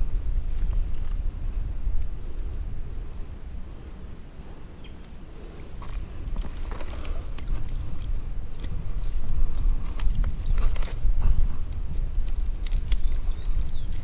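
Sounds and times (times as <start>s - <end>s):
low microphone rumble: 0.0s - 14.0s
rustling and handling noise: 5.4s - 13.4s
twigs clicking and snapping: 5.8s - 14.0s.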